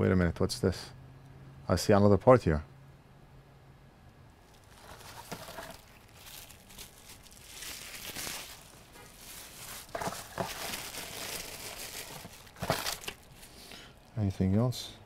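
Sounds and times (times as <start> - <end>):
bubble wrap crinkling: 4.4 - 13.8.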